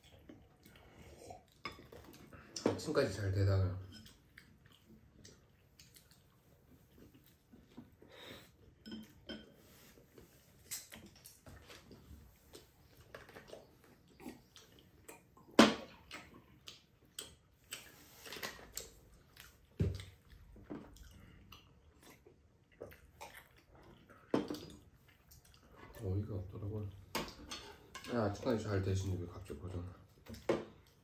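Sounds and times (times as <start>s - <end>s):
tableware clicking and knocking: 8.8s - 9.6s.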